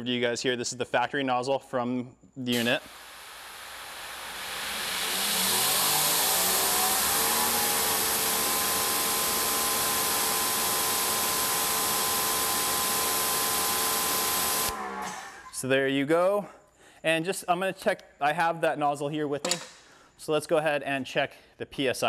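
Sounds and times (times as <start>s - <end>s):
pressure washer spray hiss: 2.6s - 8.2s
pressure washer motor whine: 2.6s - 15.5s.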